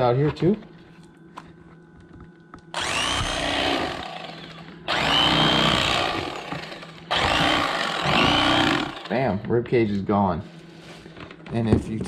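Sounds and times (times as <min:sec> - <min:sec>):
electric knife buzzing: 0:02.7 - 0:09.3.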